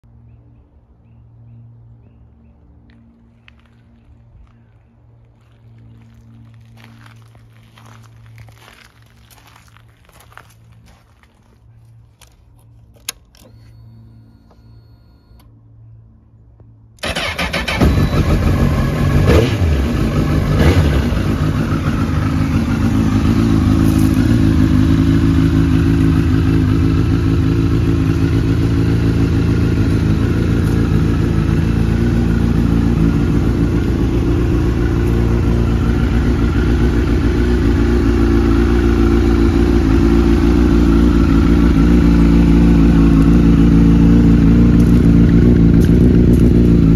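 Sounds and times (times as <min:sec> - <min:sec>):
motorcycle engine starting and idling: 0:17.0 - 0:46.9.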